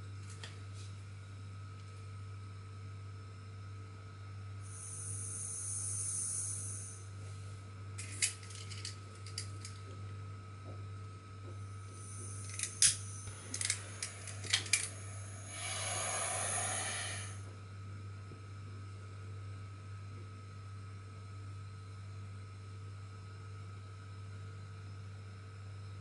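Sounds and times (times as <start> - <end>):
gas hissing: 4.6 - 7.1, 11.7 - 17.5
flame burning with steady hiss: 4.6 - 7.6, 11.5 - 17.5.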